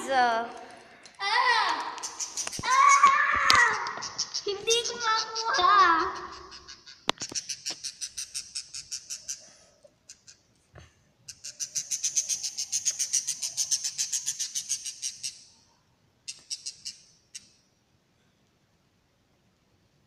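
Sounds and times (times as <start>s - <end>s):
lovebird chirping: 2.0s - 2.9s, 3.7s - 10.4s, 11.3s - 15.6s.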